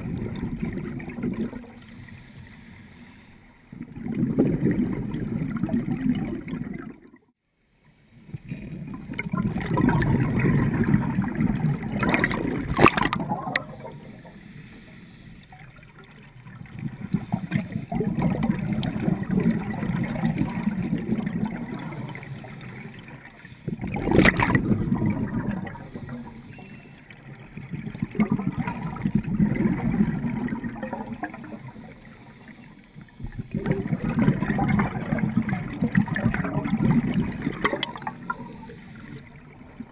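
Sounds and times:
bubbling underwater exhalations: 0:00.0 - 0:01.8, 0:03.8 - 0:07.3, 0:08.7 - 0:14.2, 0:16.6 - 0:22.8, 0:23.7 - 0:26.4, 0:27.6 - 0:31.9, 0:33.3 - 0:39.1.

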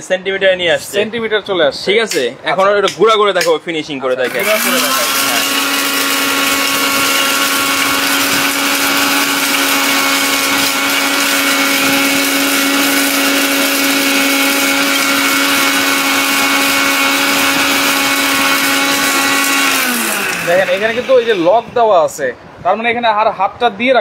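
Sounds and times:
blender motor whine: 0:04.2 - 0:21.8
hiss of grinding spice: 0:04.3 - 0:21.5.

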